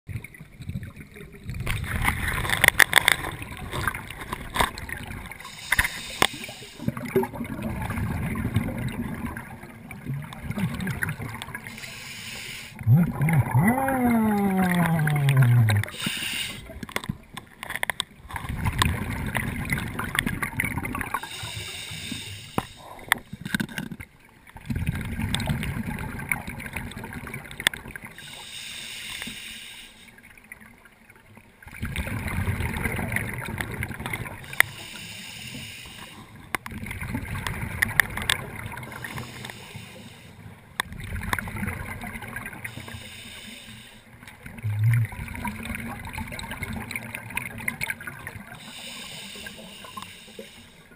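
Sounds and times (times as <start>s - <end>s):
exhaled bubbles rumbling underwater: 0.1s - 11.9s, 12.8s - 28.8s, 30.2s - 43.4s, 44.1s - 50.9s
regulator inhalation hiss: 5.4s - 6.9s, 11.7s - 12.8s, 15.9s - 16.7s, 21.2s - 23.0s, 28.2s - 30.1s, 34.5s - 36.4s, 39.0s - 40.4s, 42.7s - 44.1s, 48.6s - 50.9s.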